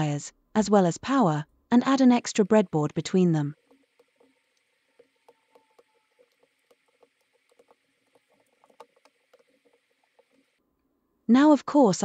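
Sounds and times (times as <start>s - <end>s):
faint small clicks and taps: 3.6s - 10.6s.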